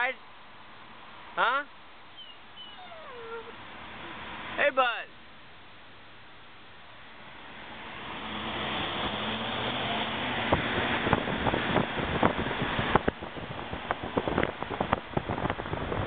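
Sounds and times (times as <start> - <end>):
wind buffeting microphone: 10.1 - 16.0.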